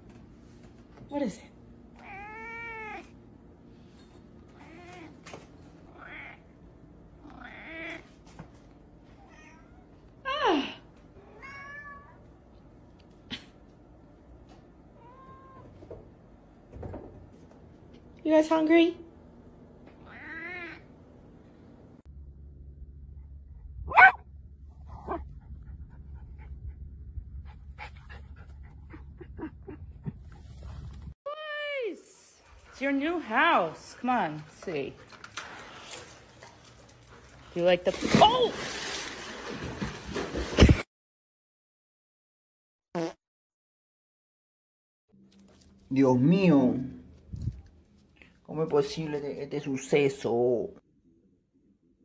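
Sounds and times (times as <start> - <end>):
steady low rumble: 21.0 - 31.2
small dog barking: 23.9 - 24.2
dog breathing quickly: 27.4 - 29.1.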